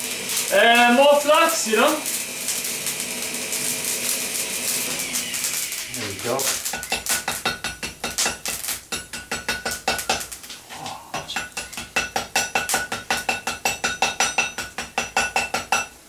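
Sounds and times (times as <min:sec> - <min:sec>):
hammer tapping hot steel on anvil: 0:06.4 - 0:10.4, 0:11.2 - 0:16.0.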